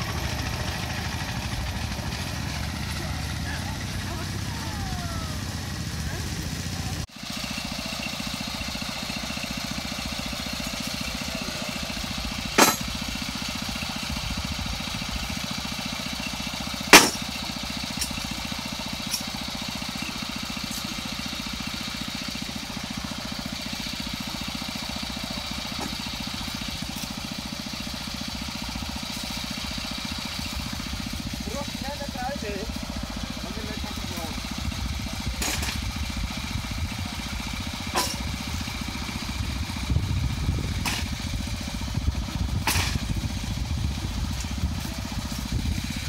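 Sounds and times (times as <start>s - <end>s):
small engine idling: 0.0s - 46.0s
sharp knocks: 16.9s - 17.3s.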